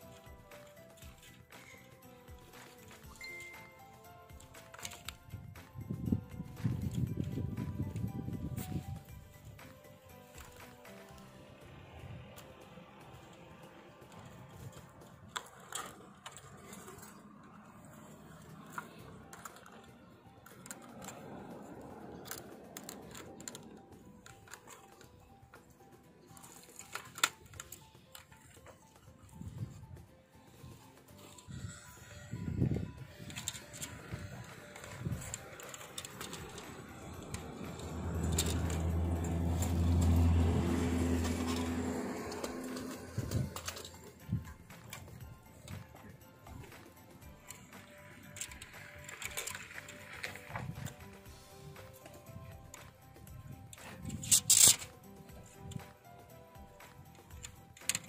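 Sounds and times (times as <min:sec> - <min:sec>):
motor vehicle engine drone: 0:05.6 - 0:27.4, 0:31.4 - 0:58.0.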